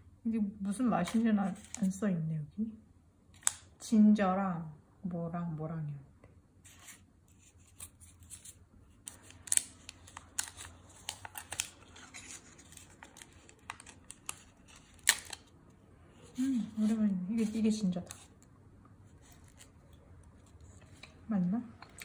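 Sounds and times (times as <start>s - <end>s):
paper wrapper crinkling: 1.1s - 2.0s, 6.8s - 15.6s, 19.1s - 21.0s.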